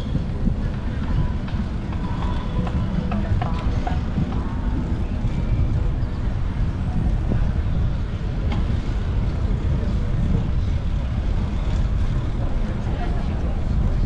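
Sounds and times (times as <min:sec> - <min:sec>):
street noise: 0:00.0 - 0:14.0
wind buffeting microphone: 0:00.0 - 0:14.0.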